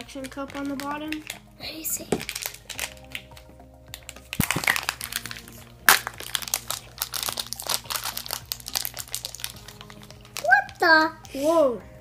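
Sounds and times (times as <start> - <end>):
foil packet crinkling: 0.0 - 3.4, 4.0 - 10.8
faint background music: 0.0 - 12.0
sharp crack: 4.0 - 10.4.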